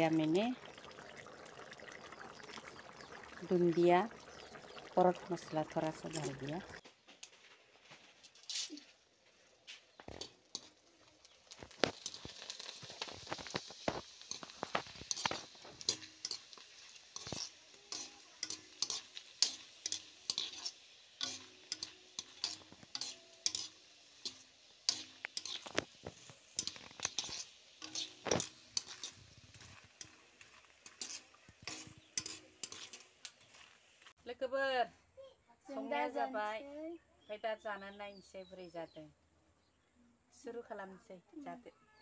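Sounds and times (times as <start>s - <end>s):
frying sizzle: 0.0s - 34.2s
metal spatula scraping iron pan: 11.6s - 33.6s.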